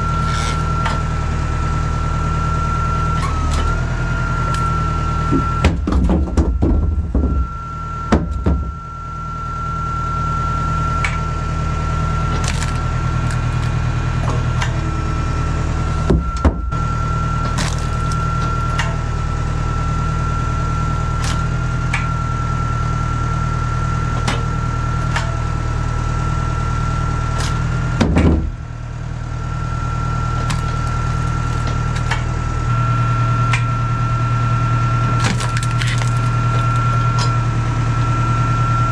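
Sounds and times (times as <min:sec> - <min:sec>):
high whine: 0:00.0 - 0:38.9
tractor engine running: 0:00.0 - 0:38.9
logs cracking as split: 0:12.3 - 0:13.8, 0:17.6 - 0:18.2, 0:30.4 - 0:32.1, 0:35.2 - 0:37.3
wood pieces hitting steel bin: 0:35.2 - 0:37.3.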